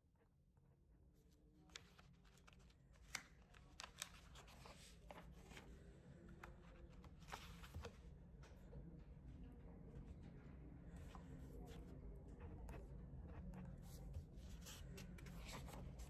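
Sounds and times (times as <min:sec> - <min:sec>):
low room hum: 0:00.0 - 0:16.0
paper rustling: 0:01.7 - 0:05.8, 0:06.4 - 0:08.0, 0:13.9 - 0:16.0.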